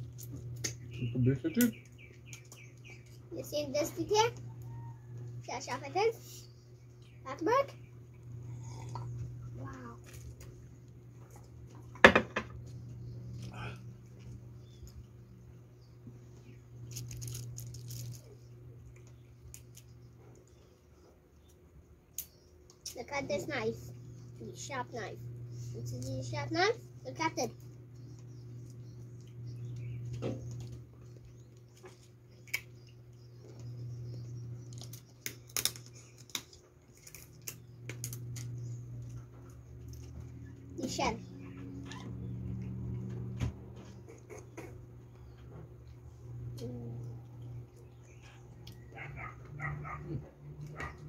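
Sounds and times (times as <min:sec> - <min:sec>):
steady low hum: 0:00.0 - 0:51.0
crab shell cracking: 0:31.8 - 0:33.2, 0:34.6 - 0:38.6.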